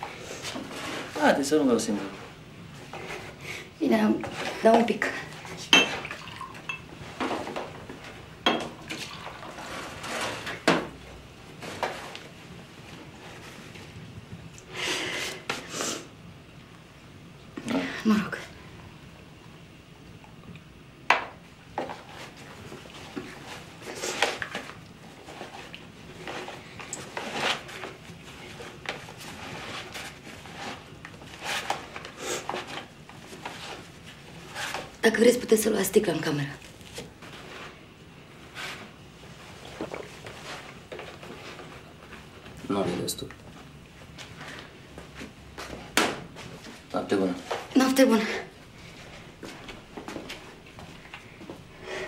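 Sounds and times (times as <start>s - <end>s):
wine pouring into glass: 5.9s - 6.8s.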